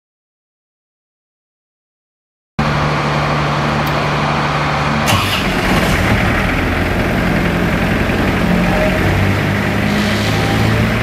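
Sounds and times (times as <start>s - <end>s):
diesel engine running: 2.6s - 11.0s.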